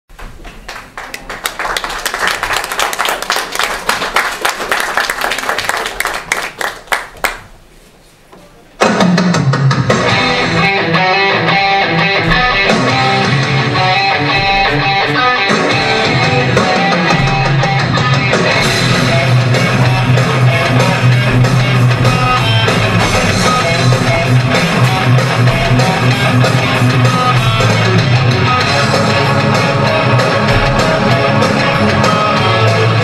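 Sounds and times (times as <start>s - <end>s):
audience applause: 0.3s - 7.5s
rock music with electric guitar: 8.9s - 33.0s.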